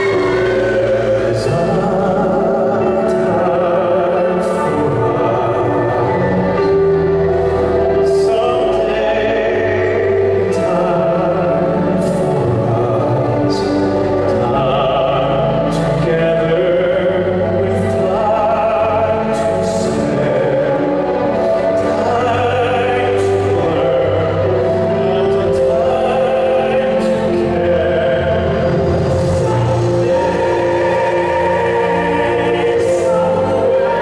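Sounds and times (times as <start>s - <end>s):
song with sung vocals: 0.0s - 34.0s.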